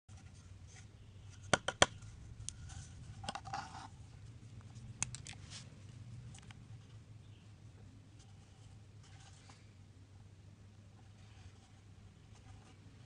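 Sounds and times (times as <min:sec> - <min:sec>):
soft rustle: 0:02.0 - 0:07.0.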